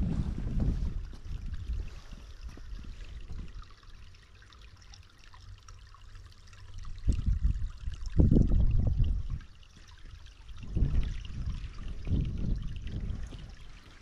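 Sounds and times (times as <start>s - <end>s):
wind buffeting microphone: 0.0s - 3.7s, 6.8s - 14.0s.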